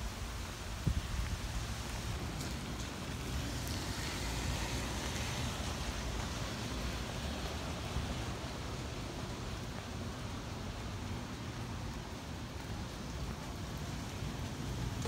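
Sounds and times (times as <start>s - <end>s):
wind buffeting microphone: 0.0s - 3.4s
hurricane wind and rain: 0.0s - 15.0s.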